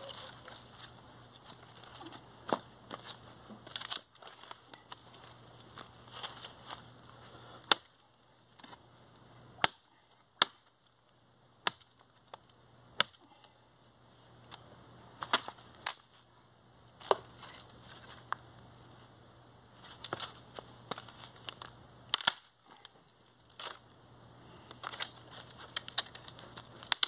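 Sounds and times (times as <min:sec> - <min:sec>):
leaves and twigs crackling underfoot: 0:00.0 - 0:11.2, 0:11.8 - 0:27.0
machete chopping wood: 0:07.7 - 0:08.0, 0:09.6 - 0:10.7, 0:13.0 - 0:13.2.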